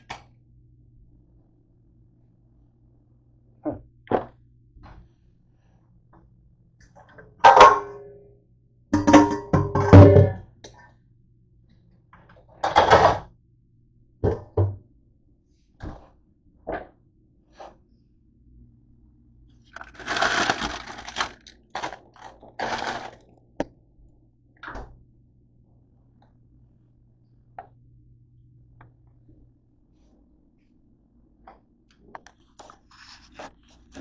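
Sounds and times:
faint steady hum: 0:00.0 - 0:34.0
knocks and clicks of kitchen things: 0:06.8 - 0:08.2, 0:08.9 - 0:10.4, 0:12.2 - 0:13.3, 0:14.2 - 0:14.9
rustling: 0:19.7 - 0:23.3.

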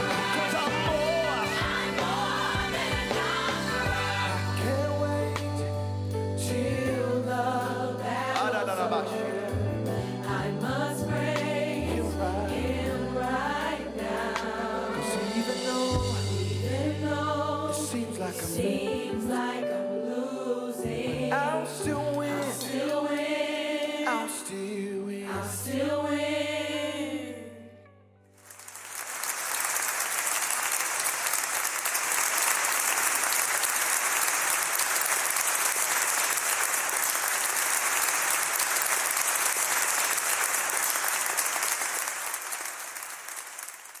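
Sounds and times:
gospel choir singing: 0:00.0 - 0:27.8
applause: 0:28.4 - 0:44.0.

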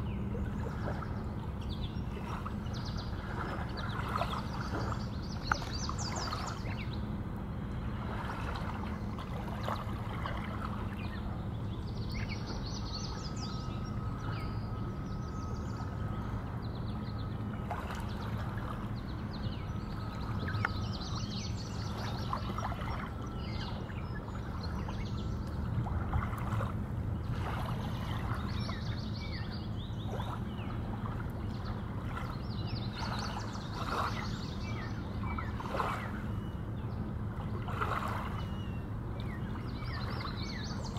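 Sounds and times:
birds chirping: 0:00.0 - 0:40.9
water lapping against hull: 0:00.0 - 0:40.9
thin whistle-like tone: 0:12.0 - 0:18.4, 0:19.2 - 0:25.4.

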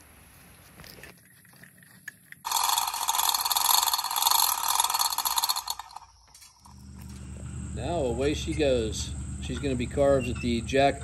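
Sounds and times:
chain hoist rattling: 0:01.2 - 0:07.2.

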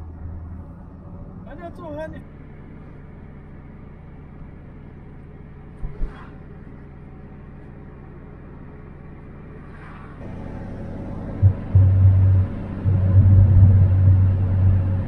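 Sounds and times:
car engine and road rumble: 0:00.0 - 0:15.0
low thumps: 0:10.2 - 0:15.0.

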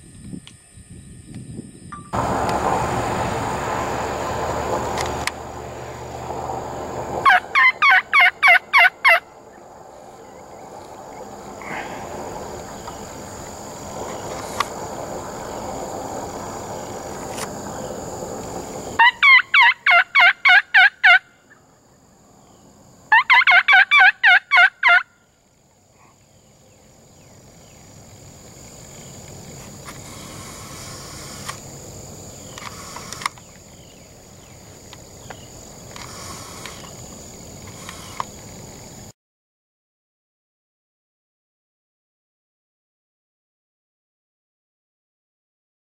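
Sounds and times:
turkey gobbling: 0:07.2 - 0:09.3, 0:19.0 - 0:21.6, 0:23.1 - 0:25.1.

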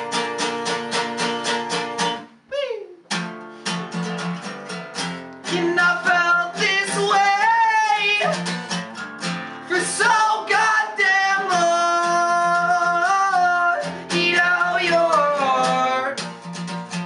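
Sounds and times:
strummed acoustic guitar: 0:00.0 - 0:02.4, 0:03.1 - 0:17.0
man singing: 0:05.5 - 0:08.6, 0:09.6 - 0:16.2.

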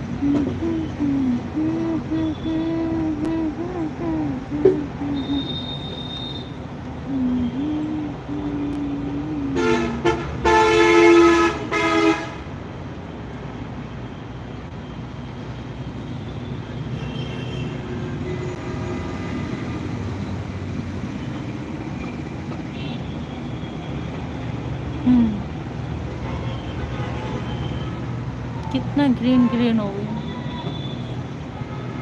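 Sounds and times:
vehicle horn honking: 0:05.2 - 0:06.6, 0:09.6 - 0:12.4.

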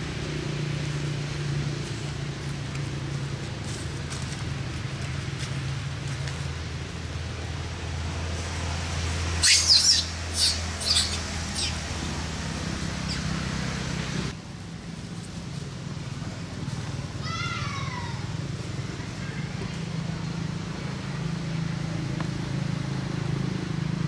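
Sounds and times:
shrill animal squeaks: 0:09.4 - 0:11.8.

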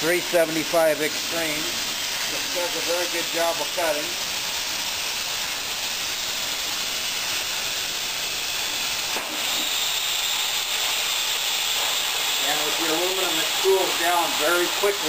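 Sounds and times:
air blowing through torch: 0:00.0 - 0:15.0
plasma cutter arc hissing: 0:00.0 - 0:15.0
torch click: 0:09.0 - 0:10.0.

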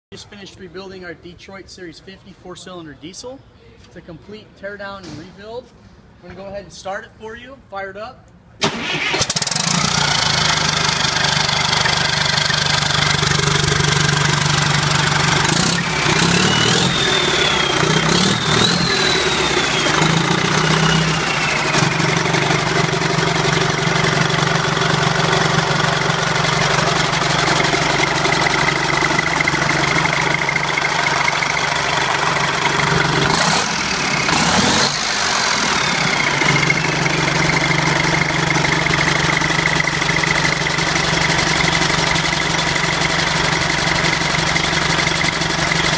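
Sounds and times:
diesel engine running: 0:08.6 - 0:45.9
turbo whistle: 0:16.2 - 0:21.8.

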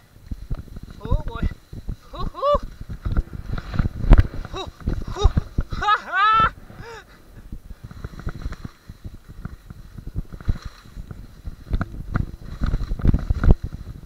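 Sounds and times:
wind buffeting microphone: 0:00.0 - 0:14.0
skis running through snow: 0:00.3 - 0:06.1, 0:06.8 - 0:14.0.

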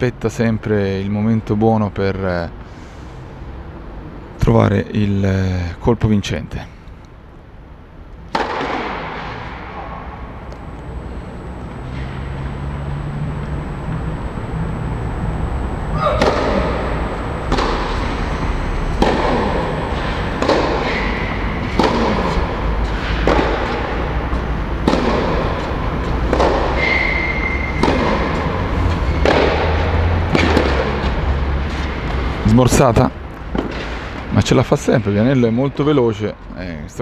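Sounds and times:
low hum: 0:06.8 - 0:36.6
tennis ball hit by rackets: 0:08.3 - 0:12.6, 0:15.9 - 0:32.4, 0:33.4 - 0:34.3.

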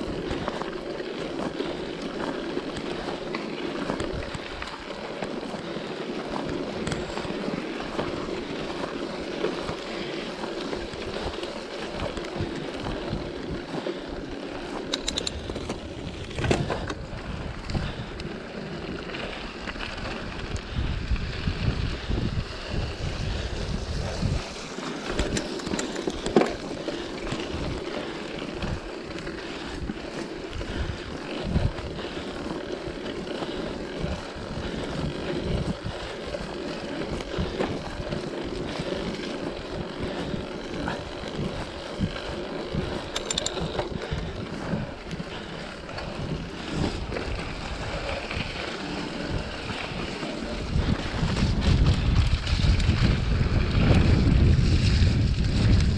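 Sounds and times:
bike tyres rolling and rattling: 0:00.0 - 0:55.9
wind buffeting microphone: 0:14.7 - 0:55.9.

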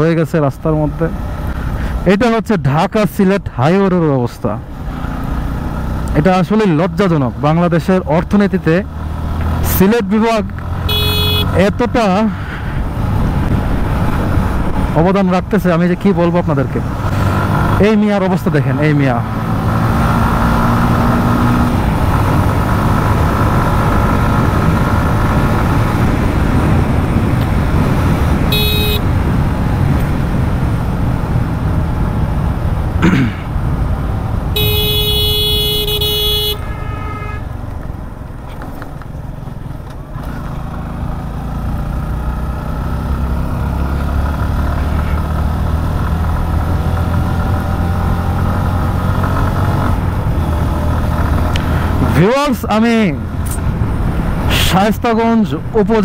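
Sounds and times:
motorcycle engine and road rumble: 0:00.0 - 0:56.0
vehicle horn beeping: 0:10.8 - 0:11.6, 0:28.5 - 0:29.1, 0:34.6 - 0:37.5.

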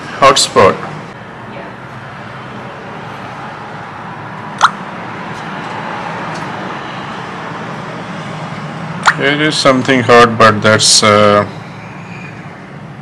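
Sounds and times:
sharp click: 0:04.6 - 0:04.8, 0:09.0 - 0:09.2.

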